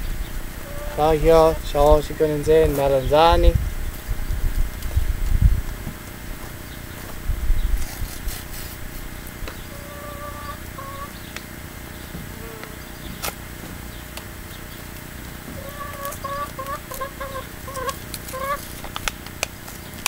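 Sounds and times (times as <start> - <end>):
chicken clucking: 0.6 - 3.4, 9.5 - 13.3, 14.6 - 18.9.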